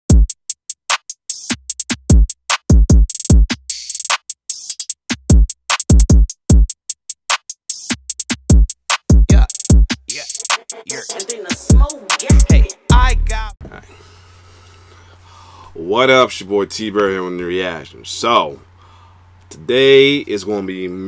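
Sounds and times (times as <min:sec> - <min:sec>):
deep kick drums: 0:02.1 - 0:03.5, 0:05.3 - 0:06.7, 0:08.5 - 0:10.1, 0:11.6 - 0:13.6
hi-hat ticks: 0:09.3 - 0:13.0.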